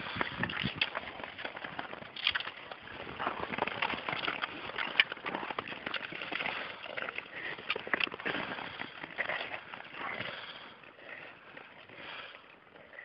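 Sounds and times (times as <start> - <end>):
skates scraping on ice: 0.0 - 13.0
sharp skate clicks: 0.1 - 9.8.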